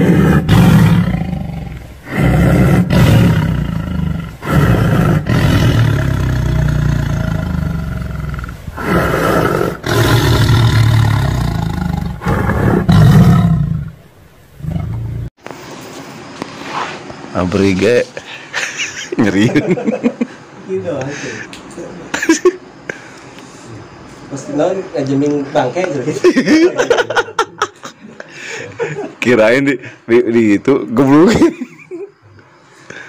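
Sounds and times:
tiger roaring and growling: 0.0s - 15.3s.

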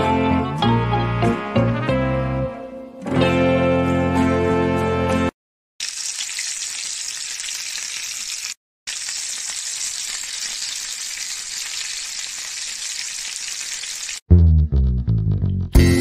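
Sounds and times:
chicken sizzling in oil: 5.8s - 14.2s.

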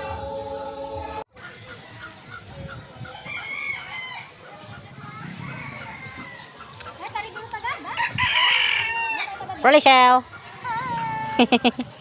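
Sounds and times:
chickens clucking: 1.4s - 11.2s
rooster crowing: 8.0s - 9.4s.

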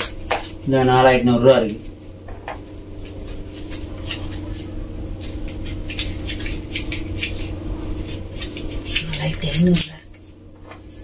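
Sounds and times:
steady low hum: 0.0s - 11.0s
paper banknotes rustling: 2.6s - 10.4s.

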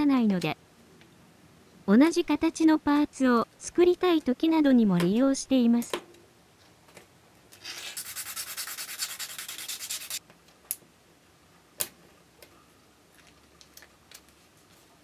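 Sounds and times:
rapid rubbing on small parts: 7.6s - 10.2s.

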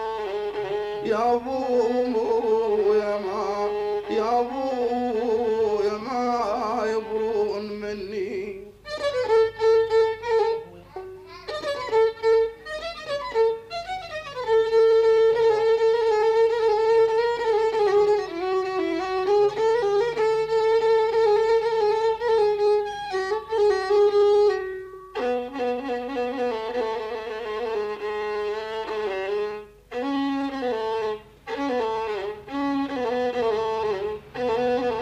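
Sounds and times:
violin ornamented melody: 0.0s - 35.0s.

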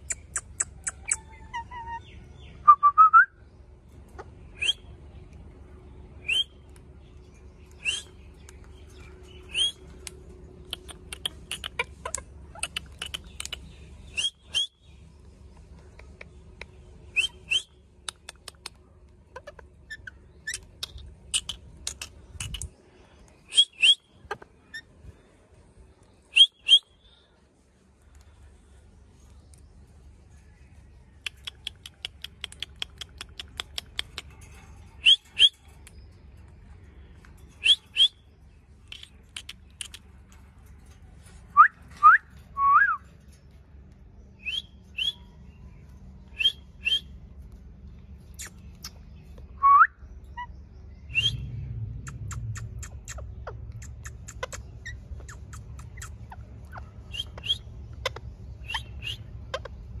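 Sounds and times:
parakeets chirping and whistling: 0.0s - 2.6s, 7.7s - 10.0s, 19.4s - 22.7s, 23.4s - 24.9s, 26.3s - 27.0s, 33.4s - 36.1s, 37.4s - 38.2s, 46.3s - 47.2s, 49.7s - 60.0s.

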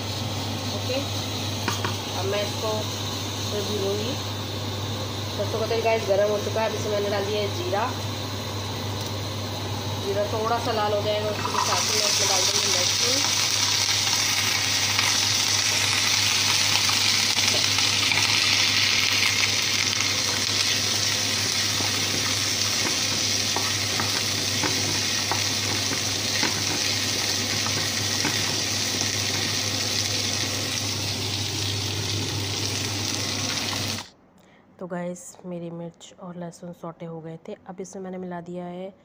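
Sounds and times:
food sizzling in hot oil: 0.0s - 34.1s
steady low hum: 0.0s - 39.0s.

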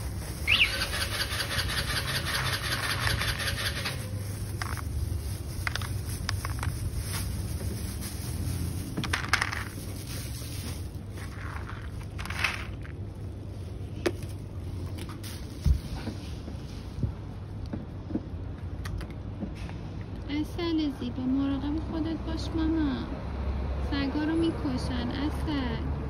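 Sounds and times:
dry kibble rattling in plastic bag: 0.0s - 15.8s.

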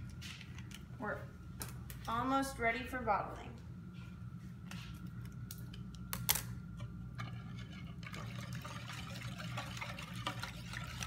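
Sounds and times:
spoon stirring liquid in bowl: 6.7s - 11.0s.

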